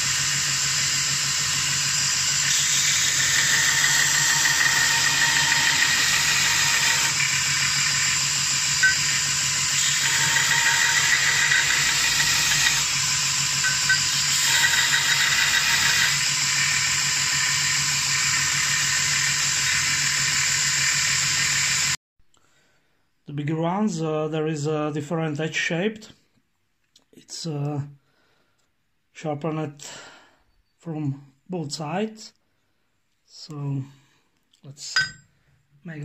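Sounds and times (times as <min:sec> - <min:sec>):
belt sander running: 0:00.0 - 0:22.0
steel grinding on sanding belt: 0:00.0 - 0:22.0.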